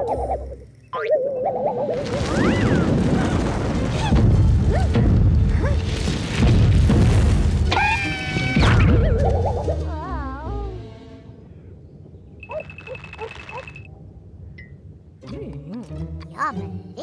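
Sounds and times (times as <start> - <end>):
long rumbling crash with thuds: 2.0 - 7.8
music: 7.7 - 11.5, 15.2 - 17.0.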